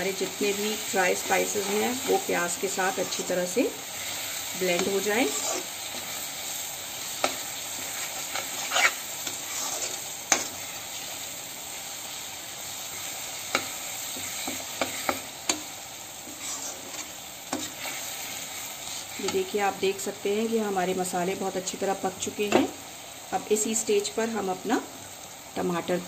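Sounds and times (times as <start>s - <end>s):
masala sizzling in hot oil: 0.0s - 26.0s
spatula scraping and knocking pan: 4.0s - 6.2s, 13.4s - 18.1s.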